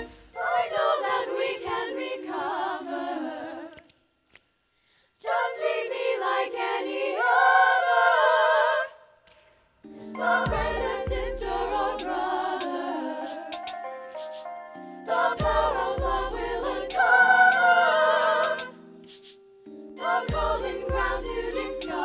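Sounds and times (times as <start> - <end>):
girls singing in unison: 0.3 - 3.8, 5.2 - 9.0, 10.1 - 13.6, 15.1 - 18.8, 20.0 - 22.0.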